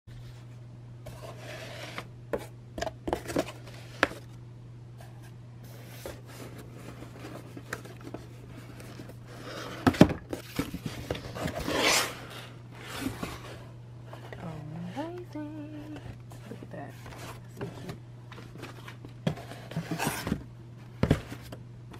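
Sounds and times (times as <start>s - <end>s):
steady low hum: 0.1s - 21.9s
cardboard scraping against cardboard: 1.1s - 2.5s, 5.1s - 15.1s, 15.9s - 20.4s.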